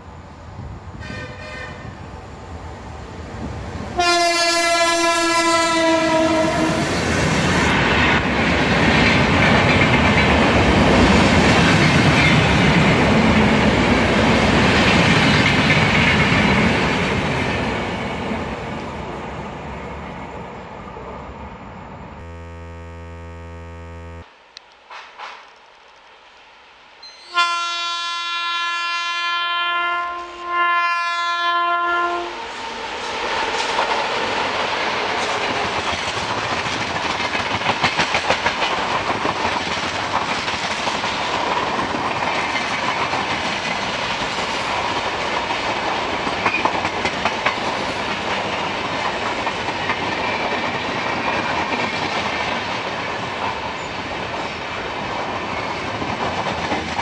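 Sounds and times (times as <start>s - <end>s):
locomotive horn blasts: 4.0s - 6.7s, 22.2s - 24.2s, 27.3s - 32.3s
train wheels clickety-clack: 7.0s - 18.4s, 33.1s - 57.0s.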